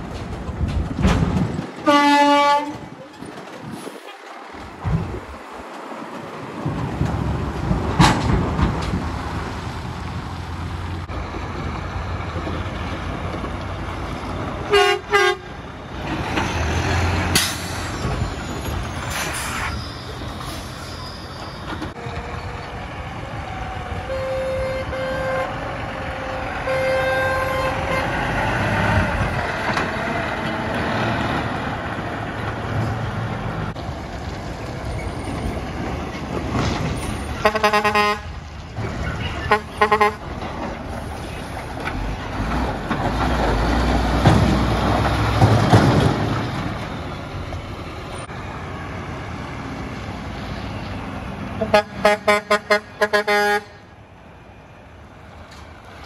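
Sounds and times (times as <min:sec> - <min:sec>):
diesel trucks driving past: 0:00.0 - 0:56.0
horn-like tones: 0:01.8 - 0:02.8, 0:14.7 - 0:15.5, 0:24.0 - 0:28.4, 0:37.4 - 0:38.3, 0:39.4 - 0:40.2
truck horn blast: 0:01.8 - 0:02.8, 0:14.6 - 0:15.6, 0:24.0 - 0:29.1, 0:37.4 - 0:38.4, 0:39.3 - 0:40.3, 0:51.6 - 0:53.9.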